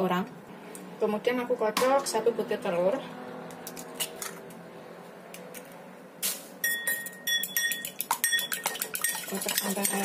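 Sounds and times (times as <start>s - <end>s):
fork clinking in ceramic bowl: 6.6s - 10.0s.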